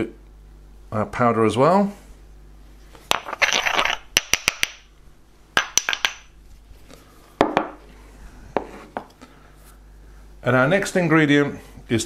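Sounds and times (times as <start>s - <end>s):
stone mortar knocking on wooden board: 5.6s - 6.3s.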